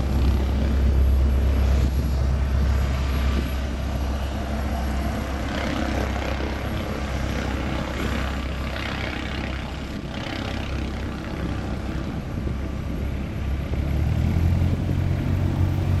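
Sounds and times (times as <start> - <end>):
deep loud drone: 0.0 - 16.0
light aircraft engine and propeller: 0.0 - 16.0.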